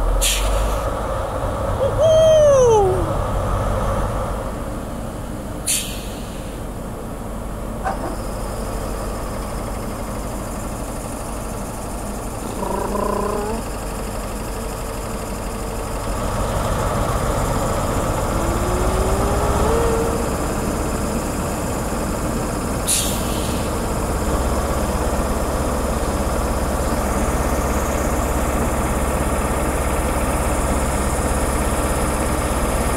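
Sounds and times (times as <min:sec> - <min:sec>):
diesel engine idling: 0:00.0 - 0:32.9
sharp hiss of air: 0:05.7 - 0:06.6, 0:22.9 - 0:23.8
rising whine: 0:17.1 - 0:21.0.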